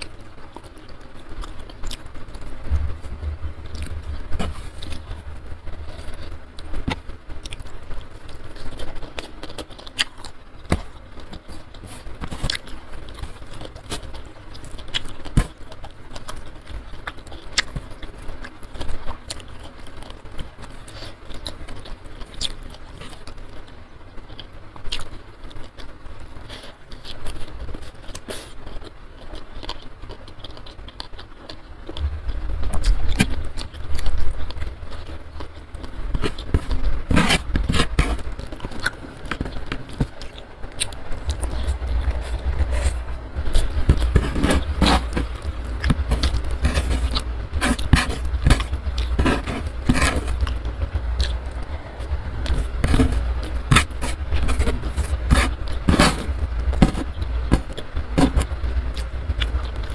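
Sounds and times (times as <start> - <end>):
chewing: 0.0 - 59.9
fingers picking at food: 0.0 - 59.9
low rumble: 1.4 - 8.3, 31.9 - 39.4, 40.0 - 59.9.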